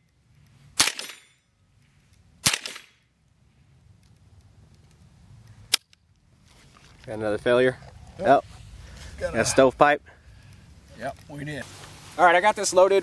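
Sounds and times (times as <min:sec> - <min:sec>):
rifle shots: 0:00.8 - 0:01.4, 0:02.4 - 0:03.0.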